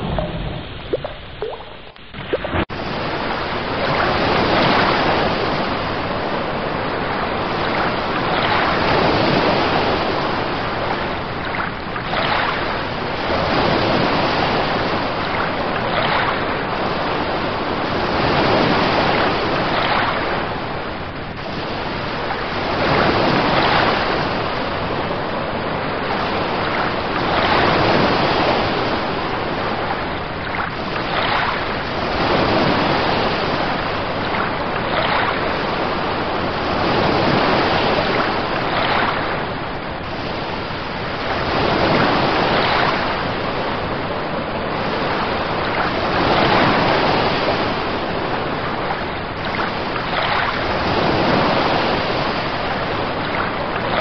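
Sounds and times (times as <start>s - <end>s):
ocean waves rushing: 0.0s - 54.0s.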